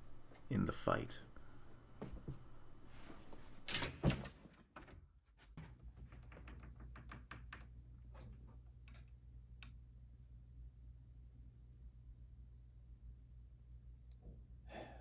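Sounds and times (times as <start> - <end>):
door opening with thunk: 3.7 - 7.6.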